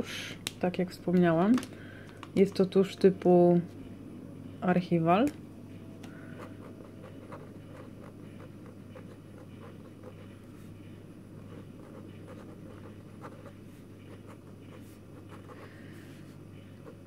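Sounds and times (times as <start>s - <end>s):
low hum: 1.8s - 17.0s
pen scratching on paper: 6.4s - 10.6s, 11.4s - 15.7s.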